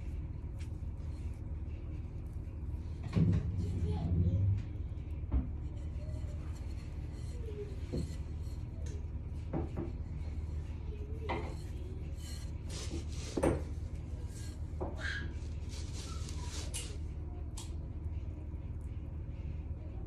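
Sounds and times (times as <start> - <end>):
glass bowl knocking and scraping: 5.4 - 8.7.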